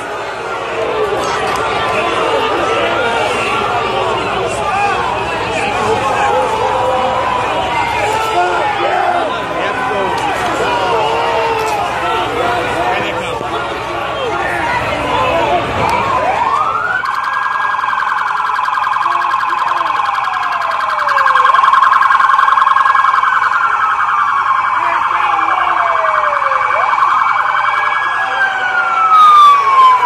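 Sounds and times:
police siren wailing: 0.0 - 30.0
siren warbling: 15.9 - 30.0.

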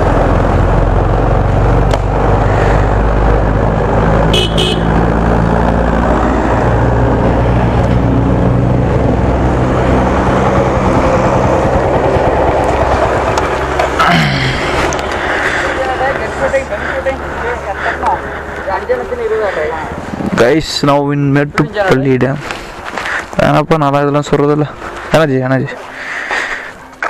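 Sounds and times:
motorcycle engine running: 0.0 - 16.5
wind and road rush: 0.0 - 27.0
two-part horn toot: 4.3 - 5.0.

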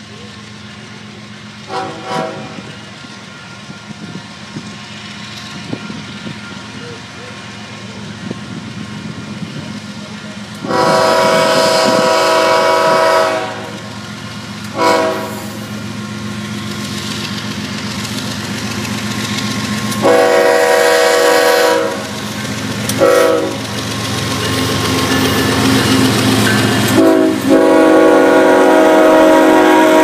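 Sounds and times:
diesel locomotive rumble: 0.0 - 30.0
wheels clacking on rails: 0.0 - 30.0
train air horn blasts: 1.7 - 2.8, 10.6 - 13.9, 14.7 - 15.7, 20.0 - 22.1, 23.0 - 23.6, 26.9 - 30.0.

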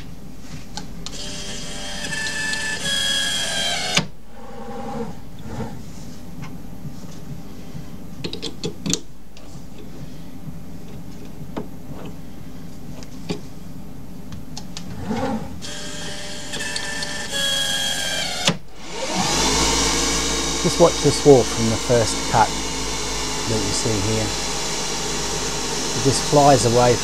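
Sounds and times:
axis drives whining: 1.0 - 7.8, 14.7 - 27.0
machine hum: 9.2 - 27.0
spindle spinning up: 18.8 - 27.0.

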